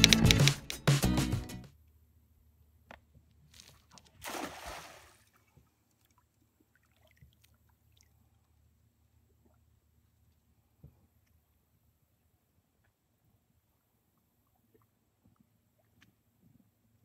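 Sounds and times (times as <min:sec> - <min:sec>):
intro music: 0:00.0 - 0:01.7
fish splashing at water surface: 0:04.2 - 0:05.3.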